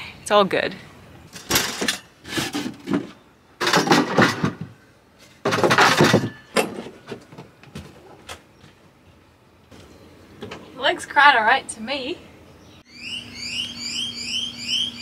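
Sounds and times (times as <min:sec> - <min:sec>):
loud scraping noises: 0:01.3 - 0:07.1
knocks and rustles of handling: 0:01.3 - 0:09.0.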